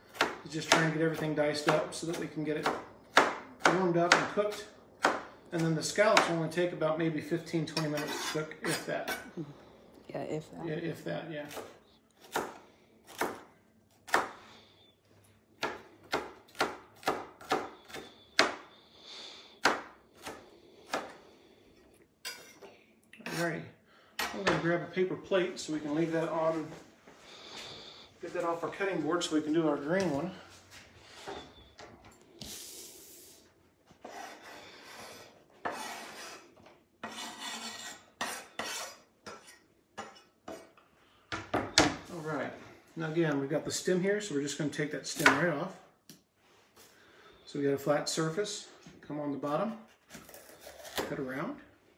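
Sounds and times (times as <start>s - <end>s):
knife chopping on cutting board: 0.1s - 6.4s, 11.5s - 13.5s, 14.1s - 14.4s, 15.6s - 18.6s, 19.6s - 21.2s
knife scraping cutting board: 7.7s - 9.2s, 34.0s - 40.8s, 49.8s - 51.3s.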